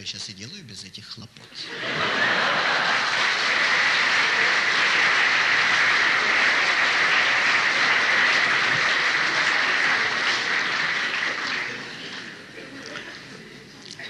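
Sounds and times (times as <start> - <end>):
audience applauding: 1.8 - 12.9.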